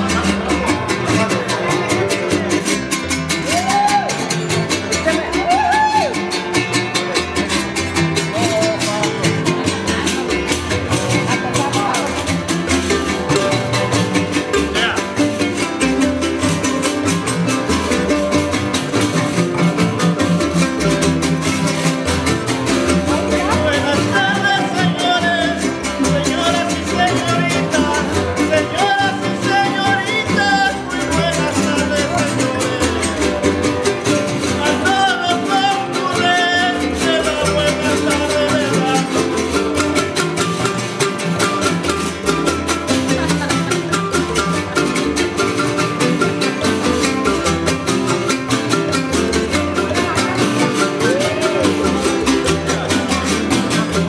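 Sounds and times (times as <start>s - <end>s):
strummed guitars: 0.0s - 54.0s
man singing: 23.1s - 33.6s, 34.4s - 39.8s.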